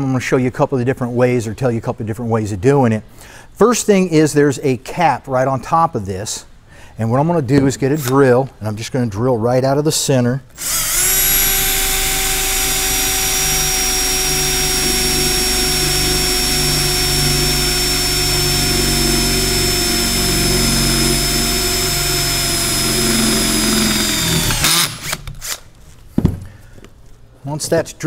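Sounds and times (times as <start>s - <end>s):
cordless drill whining: 10.6s - 25.7s.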